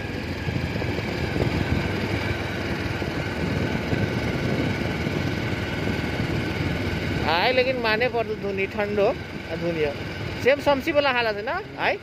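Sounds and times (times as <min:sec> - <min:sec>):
wind noise: 0:00.0 - 0:08.1
motorcycle engine running: 0:00.0 - 0:12.0.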